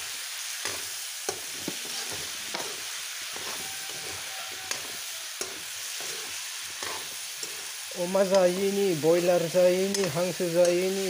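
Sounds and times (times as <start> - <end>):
meat sizzling in a wok: 0.0 - 11.0
metal spoon scraping a pan: 0.6 - 8.6.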